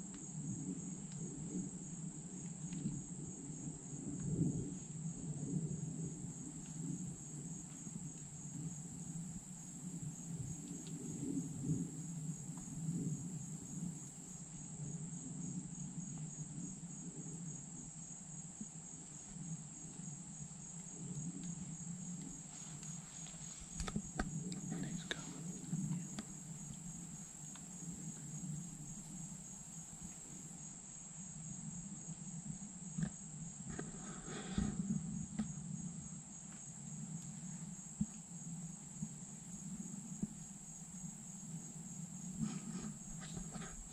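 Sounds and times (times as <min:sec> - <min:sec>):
high-pitched insect trill: 0:05.8 - 0:18.2, 0:19.2 - 0:32.0, 0:36.0 - 0:43.9.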